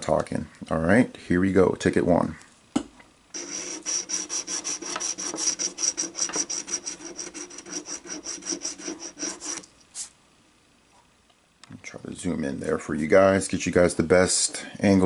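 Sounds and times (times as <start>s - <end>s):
scratch card scraping: 3.4s - 10.1s.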